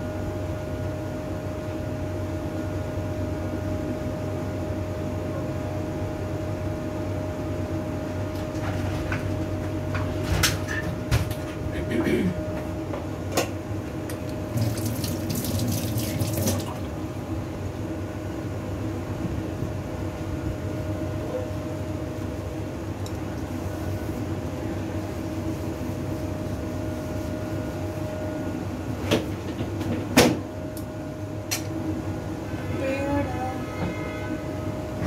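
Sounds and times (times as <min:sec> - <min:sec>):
steady hum: 0:00.0 - 0:35.0
water running and splashing: 0:14.5 - 0:16.9.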